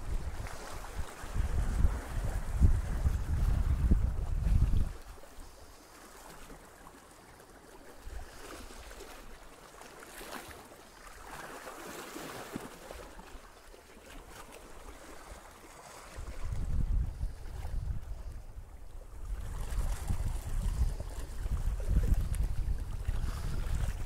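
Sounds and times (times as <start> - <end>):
wind buffeting microphone: 0.0 - 5.1, 16.1 - 24.0
sea lapping against rocks: 0.0 - 24.0.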